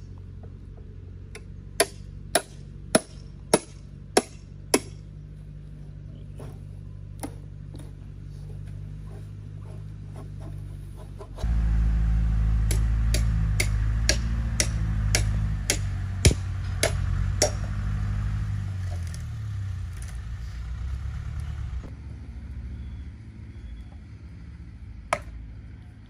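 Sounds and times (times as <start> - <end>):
small engine droning: 0.0 - 26.0
sharp knocks: 12.5 - 17.8.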